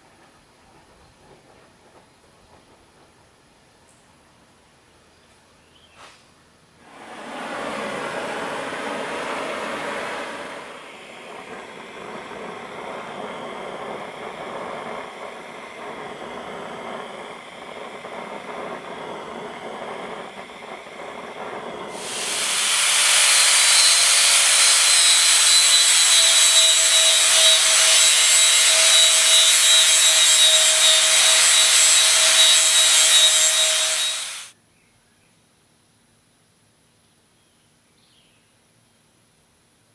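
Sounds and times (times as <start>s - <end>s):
loud rush of noise: 6.8s - 32.9s
gas torch flame rushing: 6.8s - 34.5s
angle grinder grinding steel: 6.9s - 34.5s.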